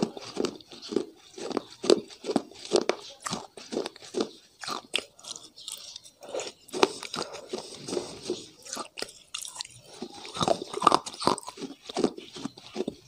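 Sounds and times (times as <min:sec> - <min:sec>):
person chewing crunchy food: 0:00.0 - 0:13.0.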